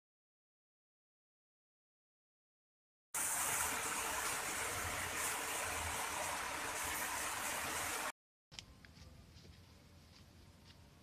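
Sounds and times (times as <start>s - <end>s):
heavy rain hissing: 3.2s - 8.1s.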